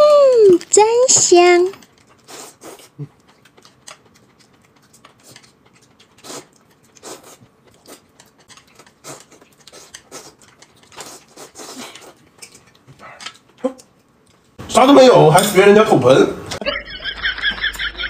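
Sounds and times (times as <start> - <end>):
wet chewing smacks: 1.7 - 14.6
noodle slurping: 1.8 - 13.9.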